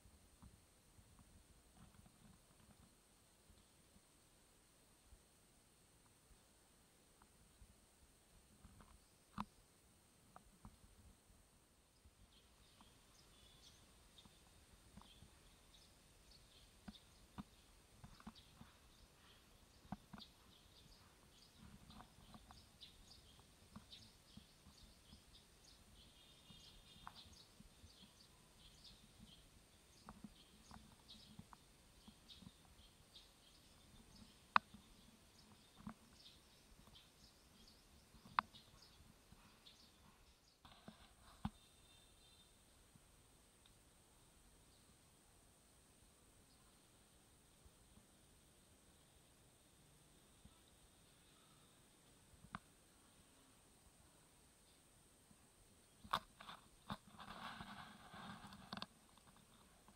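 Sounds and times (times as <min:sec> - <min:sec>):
small ticks and clicks: 0:08.5 - 0:09.6, 0:12.0 - 0:42.4, 0:43.5 - 0:43.8, 0:52.0 - 0:52.8, 0:55.8 - 0:59.9
faint high chirps: 0:11.8 - 0:45.2, 0:46.0 - 0:54.9.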